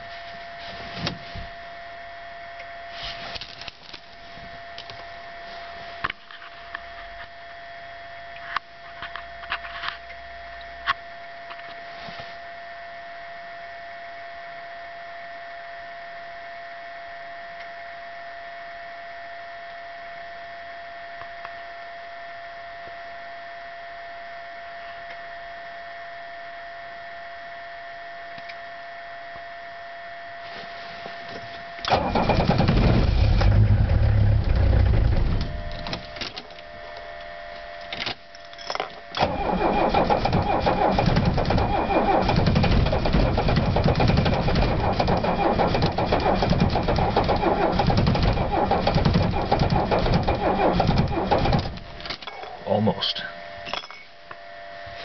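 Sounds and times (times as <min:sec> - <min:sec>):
faint steady whine: 0:00.0 - 0:55.0
diesel engine running loudly: 0:31.9 - 0:35.9, 0:39.2 - 0:51.8
starter cranking engine: 0:31.9 - 0:35.9, 0:39.2 - 0:51.8.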